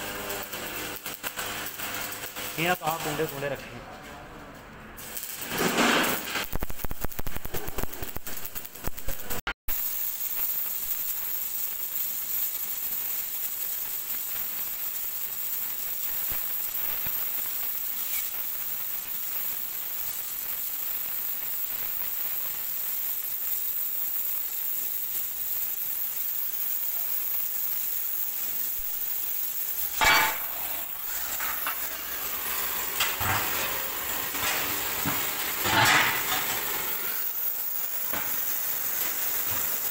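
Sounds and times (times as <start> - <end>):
sizzling hiss of hot steel: 0.0 - 3.6, 4.9 - 39.9
electric arc welding crackling: 0.0 - 3.8, 4.9 - 39.9
metal clangs: 29.9 - 36.8.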